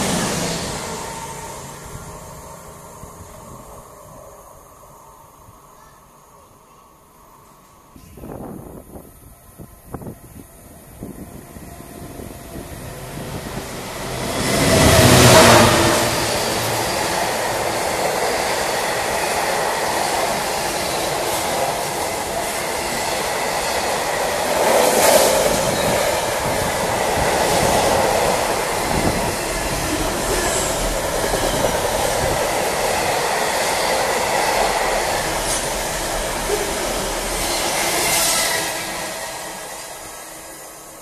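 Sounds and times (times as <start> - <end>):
freight train wheels rumbling on rails: 0.0 - 4.8, 8.0 - 41.0.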